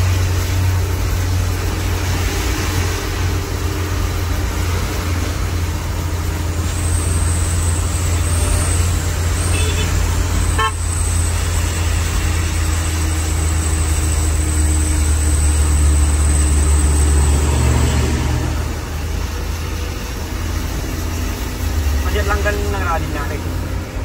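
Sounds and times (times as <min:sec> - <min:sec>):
truck engine drone: 0:00.0 - 0:24.0
horn toot: 0:09.4 - 0:10.9.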